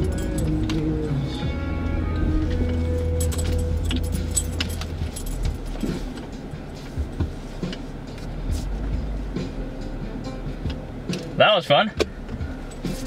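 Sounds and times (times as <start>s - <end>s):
vehicle engine rumbling: 0.0s - 13.0s
loose things rattling in cabin: 2.2s - 7.8s.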